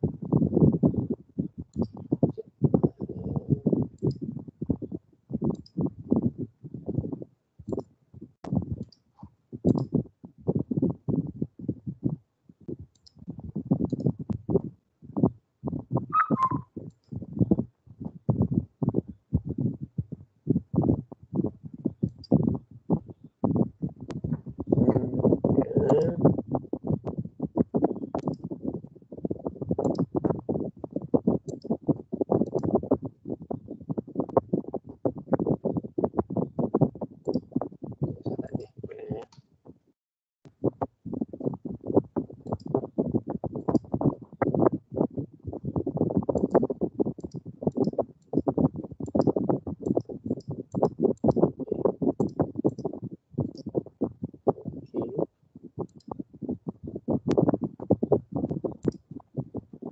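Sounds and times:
sharp clicks: 28.1 - 28.4
computer clicking and tapping: 28.1 - 28.5, 31.2 - 32.8, 46.2 - 51.5.

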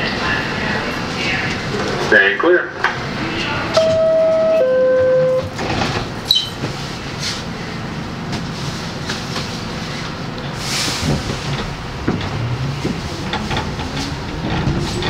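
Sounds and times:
stopped train noise: 0.0 - 15.0
subway doors clanking shut: 2.8 - 15.0
two-note door chime: 3.8 - 5.5.

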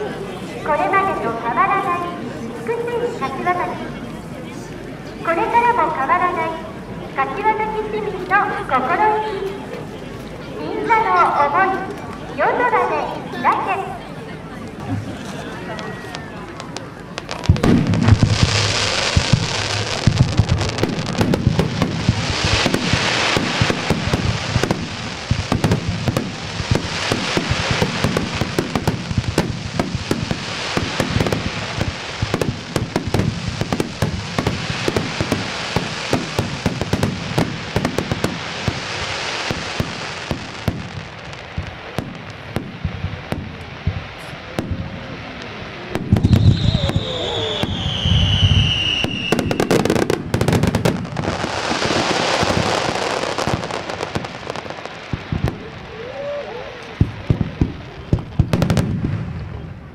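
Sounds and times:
fireworks crackling: 0.0 - 59.9
firework bangs: 14.8 - 59.9.

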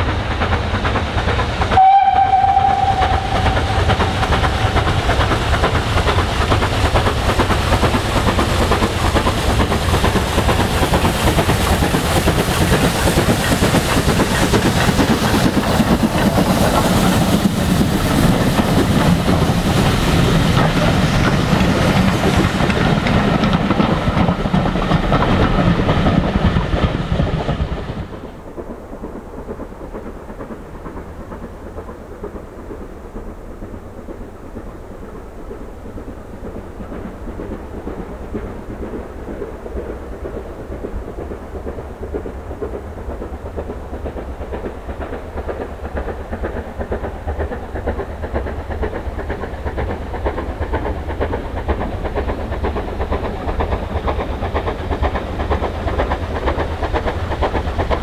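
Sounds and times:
steam train rumble: 0.0 - 58.0.

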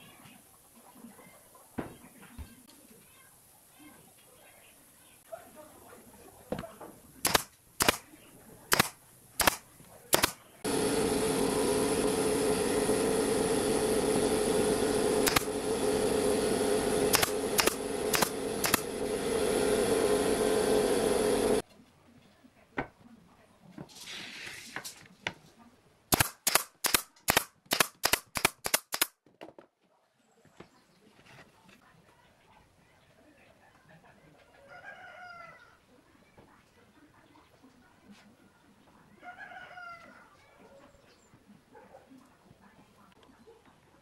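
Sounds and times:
nail gun shots: 7.2 - 10.5, 15.2 - 15.6, 17.1 - 18.9, 26.1 - 29.1
loud steady machine drone: 10.2 - 21.6.

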